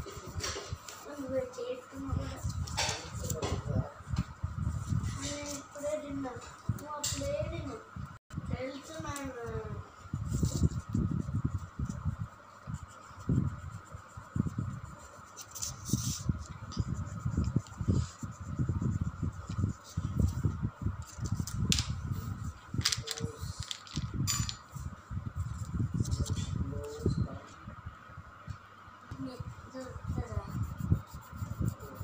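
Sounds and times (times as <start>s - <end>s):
colouring strokes rubbing on paper: 0.0s - 3.9s, 8.6s - 23.8s, 29.3s - 32.0s
steady hum: 0.0s - 32.0s.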